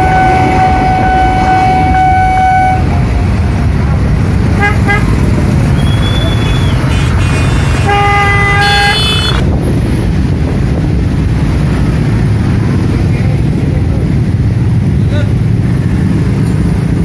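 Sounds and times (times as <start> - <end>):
vehicle horns honking: 0.0 - 3.2, 4.5 - 9.5
motorcycle and car engines: 0.0 - 17.0.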